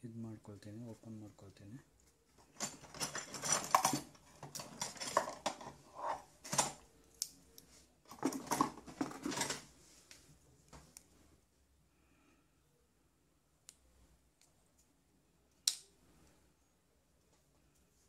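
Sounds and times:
light metallic clatter of tools: 2.5 - 5.8.

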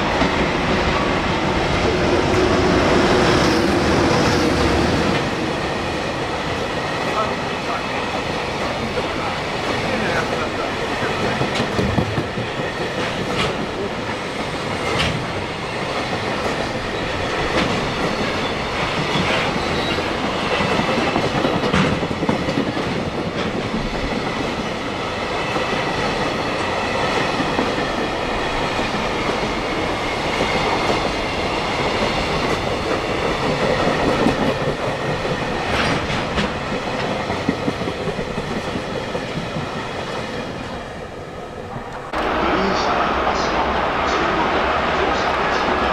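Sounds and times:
train rumble: 0.0 - 45.9
train wheels clacking over rail joints: 7.0 - 40.3.

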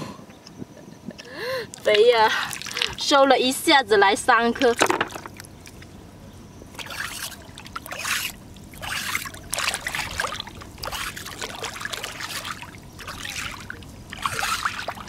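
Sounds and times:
boots wading in water: 1.7 - 3.3, 6.7 - 15.0
seawater sloshing and splashing: 1.7 - 3.4, 4.6 - 6.0, 6.7 - 15.0.

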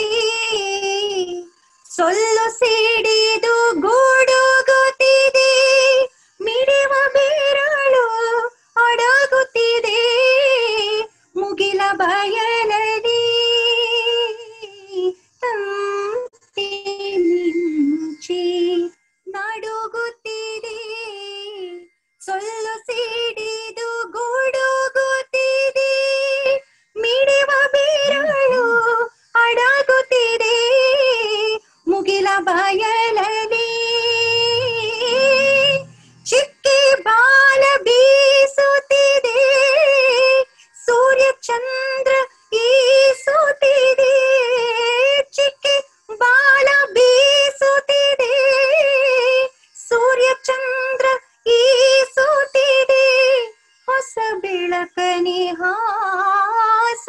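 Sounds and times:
woman singing solo: 25.3 - 45.8.

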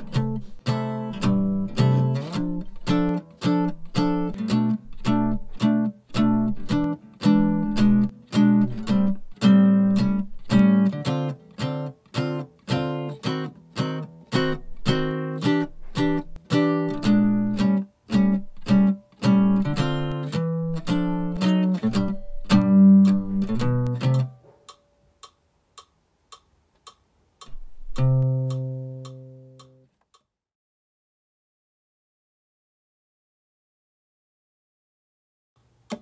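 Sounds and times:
jazz guitar chords: 0.0 - 24.4, 27.5 - 29.8
faint ticks: 23.8 - 27.6, 28.2 - 30.3.

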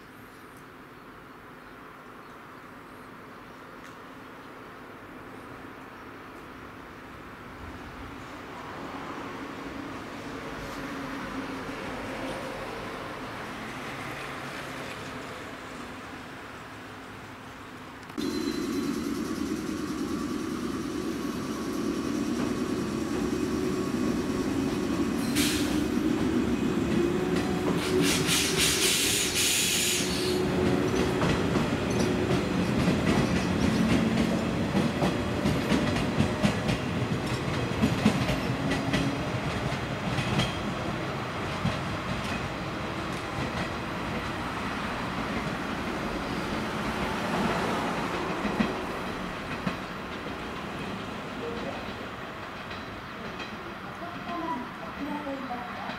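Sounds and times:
electric train motor whine: 18.2 - 26.3
train air hiss: 18.2 - 30.8
wheels clicking over rail joints: 48.1 - 55.2.

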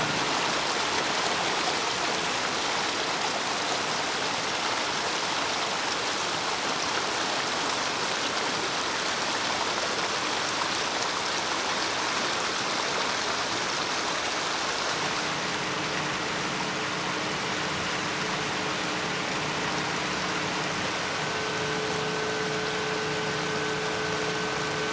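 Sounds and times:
faint low machine hum: 0.0 - 24.9
stream rushing over rocks: 0.0 - 24.9.

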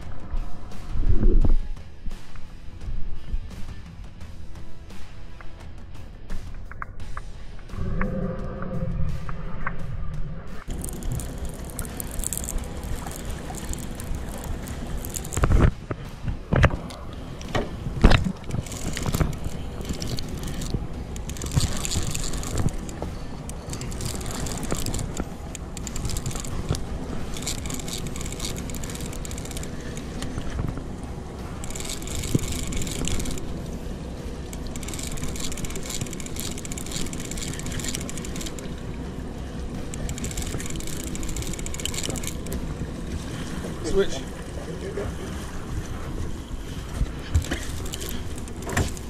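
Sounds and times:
outboard motor rumble: 0.0 - 49.0
fishing reel cranking and whirring: 10.7 - 15.6, 16.6 - 44.6, 46.8 - 49.0.

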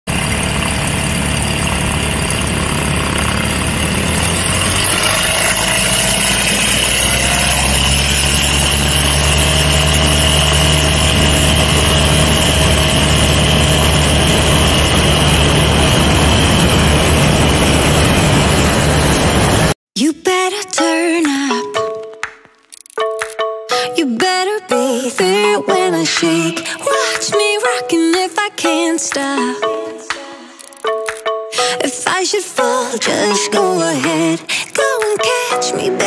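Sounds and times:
aircraft piston engine running: 0.1 - 19.8.

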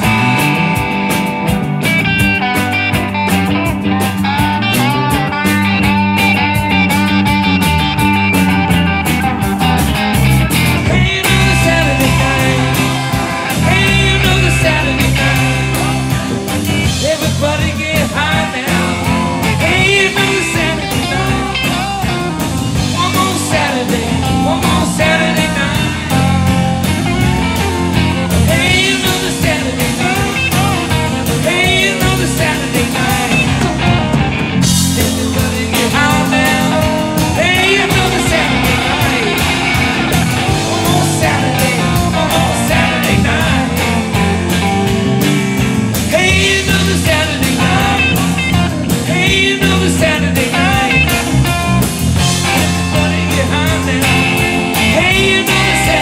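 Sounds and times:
lead guitar bending notes: 0.0 - 56.0
rock band playing: 0.0 - 56.0.

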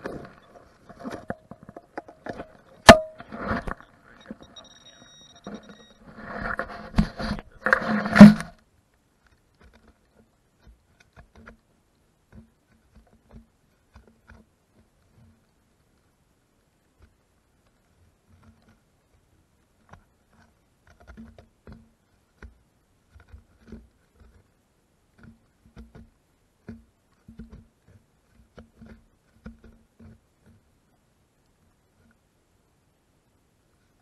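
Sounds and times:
hand digger scraping soil: 2.4 - 8.6.

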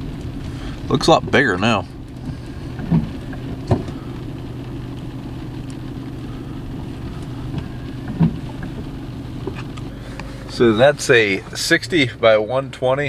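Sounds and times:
vehicle engine running: 0.0 - 13.0
short knocks: 2.2 - 4.0, 7.5 - 9.7.

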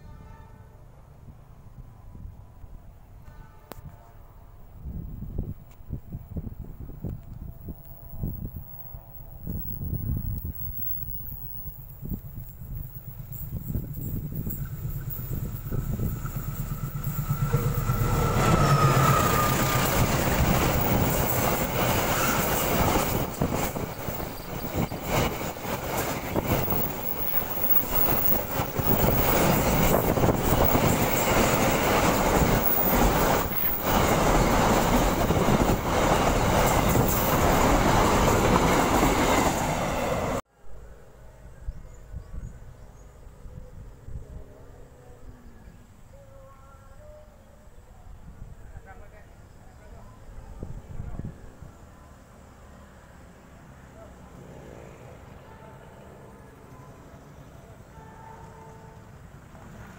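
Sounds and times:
freight train rumbling past: 0.0 - 45.6, 48.0 - 59.9
diesel locomotive engine passing: 4.2 - 45.9, 48.0 - 59.9
wheels clacking over rails: 12.4 - 39.9.

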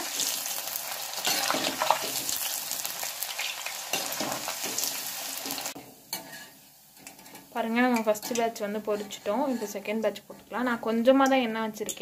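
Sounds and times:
food deep-frying in sizzling oil: 0.0 - 8.6.

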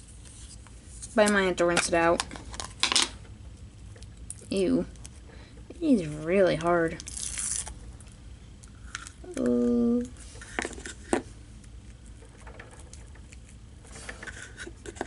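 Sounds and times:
person humming: 9.2 - 10.1
soft rubbing of slime: 10.2 - 12.2.

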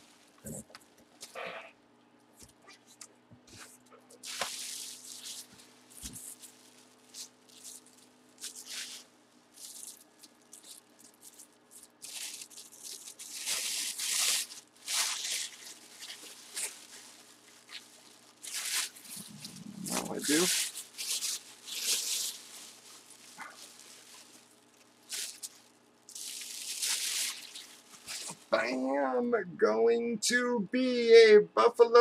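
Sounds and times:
plastic packaging crinkling: 4.2 - 28.6.

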